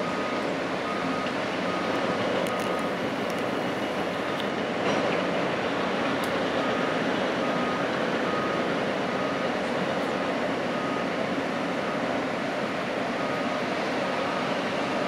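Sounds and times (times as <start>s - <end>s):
construction machinery noise: 0.0s - 15.0s.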